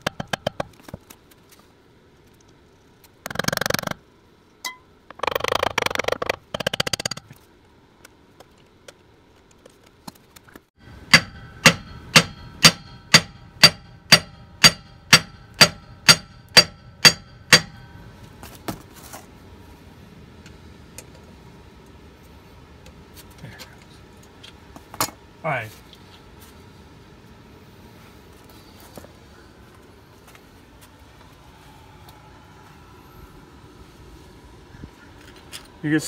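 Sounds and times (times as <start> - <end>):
hammer striking metal with ring: 11.0 - 18.1.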